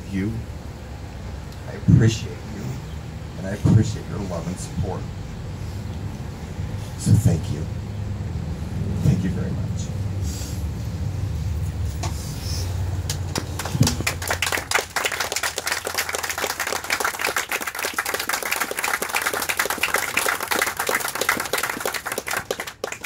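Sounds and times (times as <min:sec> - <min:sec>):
audience applauding: 0:13.0 - 0:23.0.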